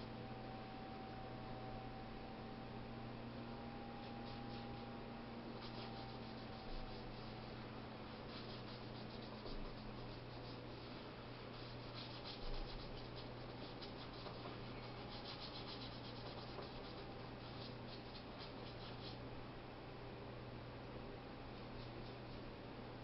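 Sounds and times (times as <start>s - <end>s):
steady low hum: 0.0s - 23.0s
paintbrush scratching on canvas: 4.0s - 4.9s, 5.5s - 19.2s.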